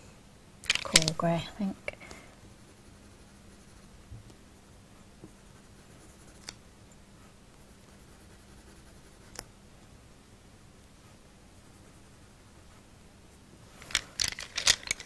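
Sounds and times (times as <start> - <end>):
low steady hum: 0.0 - 15.0
pencil scratching on paper: 2.5 - 6.6, 7.2 - 9.4.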